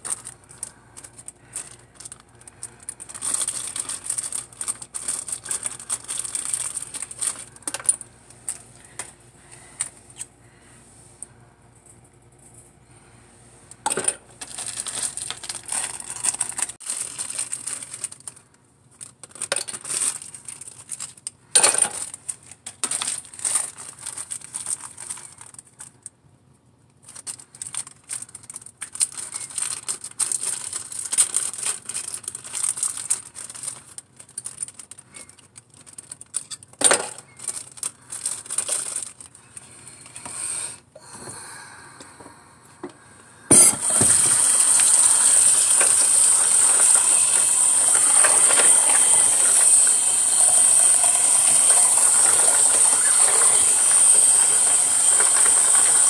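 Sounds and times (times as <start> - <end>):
plastic bag crinkling: 0.0 - 10.6, 13.9 - 26.1, 27.0 - 40.1, 43.7 - 56.0
plastic tubes clattering into tub: 13.8 - 17.2, 21.5 - 23.7, 43.5 - 56.0.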